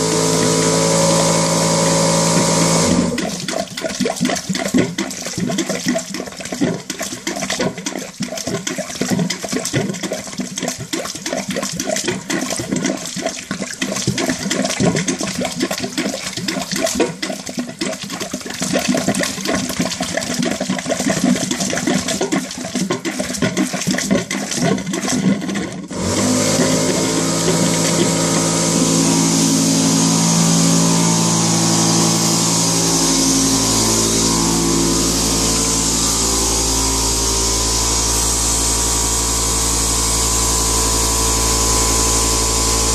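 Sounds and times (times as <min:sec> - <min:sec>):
motor running with steady tones: 0:00.0 - 0:03.4, 0:25.9 - 0:42.9
water gushing into a toilet bowl: 0:00.0 - 0:42.9.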